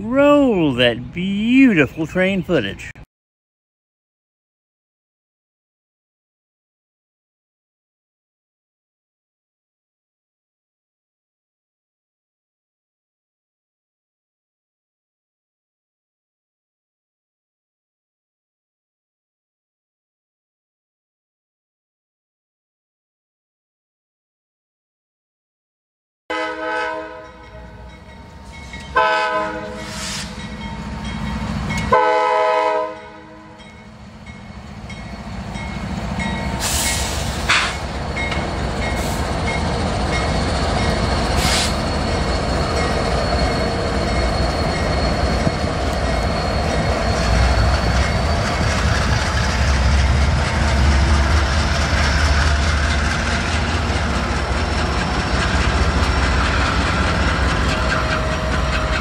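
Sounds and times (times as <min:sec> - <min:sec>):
locomotive engines and wheels rumbling: 0:00.0 - 0:03.0, 0:26.4 - 0:59.0
locomotive horn chord: 0:26.3 - 0:27.9, 0:28.9 - 0:30.2, 0:31.9 - 0:33.6.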